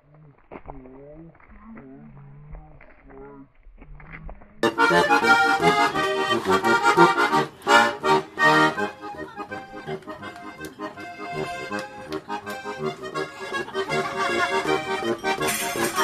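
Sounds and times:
button accordion playing: 4.6s - 16.0s.

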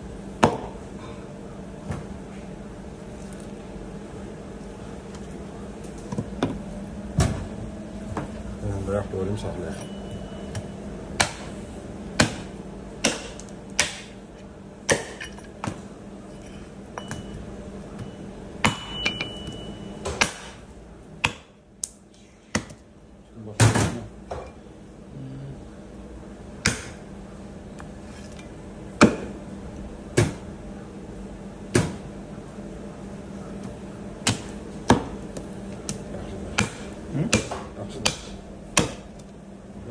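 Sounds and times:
steady low hum: 0.0s - 39.9s
meat cleaver chopping on wood: 11.2s - 11.5s, 12.2s - 14.1s, 14.9s - 15.2s, 21.2s - 21.5s, 26.6s - 27.0s, 34.2s - 35.2s, 36.6s - 39.0s.

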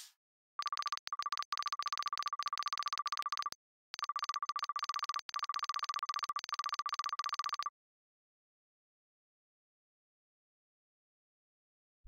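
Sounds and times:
electronic typing ticks: 0.6s - 7.7s.

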